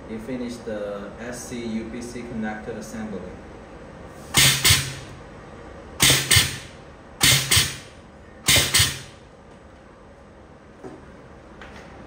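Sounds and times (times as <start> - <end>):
low machine hum: 0.0 - 12.0
crimping machine hissing bursts: 4.3 - 5.1, 6.0 - 9.2.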